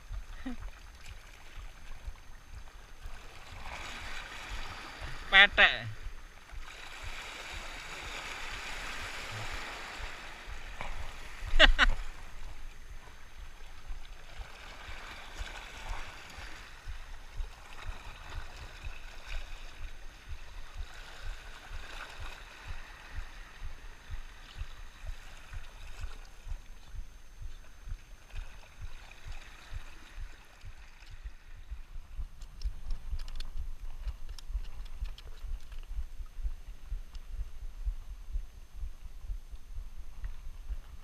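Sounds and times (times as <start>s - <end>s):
small waves lapping on rocks: 0.0s - 31.8s
sharp clicks: 32.3s - 36.1s.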